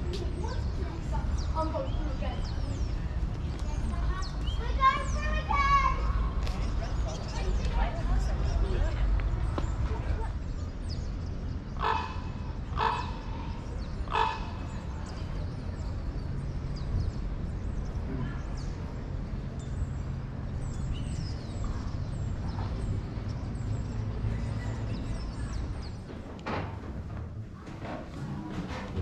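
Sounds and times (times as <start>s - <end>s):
small birds chirping: 0.0s - 26.2s
low rumble of wind: 0.0s - 29.0s
raven croaking: 11.8s - 14.8s.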